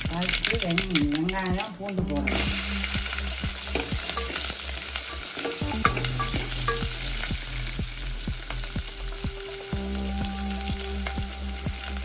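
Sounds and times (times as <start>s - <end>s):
crackles and pops: 0.0s - 8.8s
sizzling in hot oil: 0.0s - 12.0s
ladle stirring in pot: 0.1s - 7.4s.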